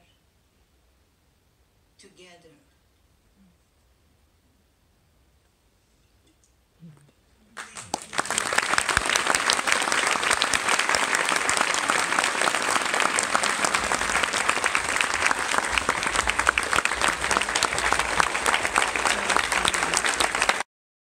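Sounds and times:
audience applauding: 0:07.6 - 0:20.7.

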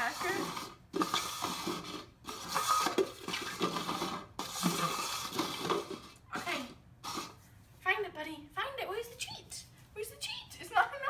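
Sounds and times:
plastic cups scraping on tile floor: 0:00.0 - 0:07.5.

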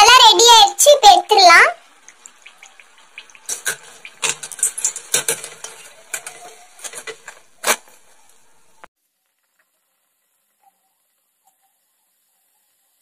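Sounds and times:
frying oil hiss: 0:00.0 - 0:13.0
metal skimmer clinking on pan: 0:03.4 - 0:07.9.

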